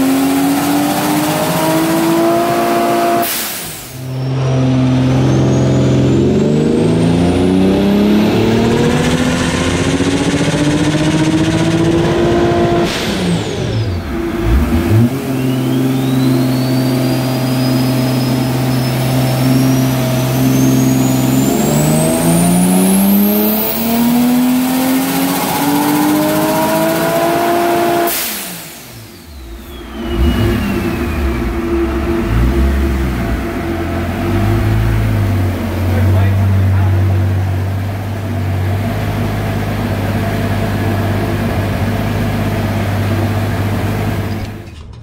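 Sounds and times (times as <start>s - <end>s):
car engine revving on a dyno: 0.0s - 44.7s
turbo whistle: 14.9s - 21.6s, 29.1s - 32.8s.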